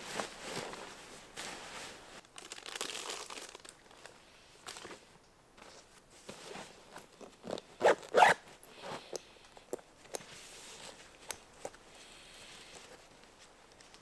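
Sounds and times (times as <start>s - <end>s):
backpack zipper pulled: 7.4s - 9.2s.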